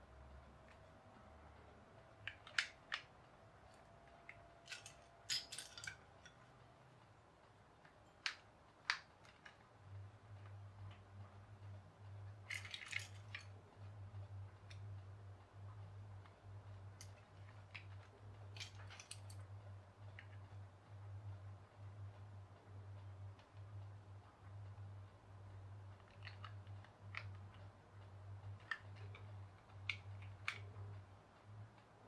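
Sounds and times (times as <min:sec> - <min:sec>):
plastic toy bricks clicking: 0:02.2 - 0:06.4, 0:08.0 - 0:09.7, 0:12.4 - 0:13.6, 0:17.0 - 0:19.4, 0:26.0 - 0:27.6, 0:28.5 - 0:30.8.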